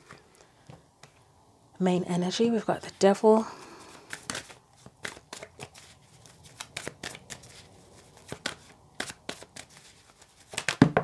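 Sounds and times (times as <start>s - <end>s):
cards being shuffled by hand: 2.9s - 11.0s.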